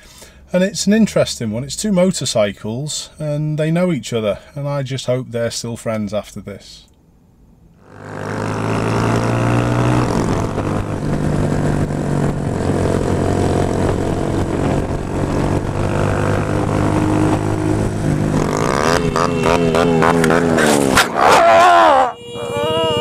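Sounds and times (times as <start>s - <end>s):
motorcycle engine running: 7.8s - 23.0s
wind noise: 9.4s - 21.1s.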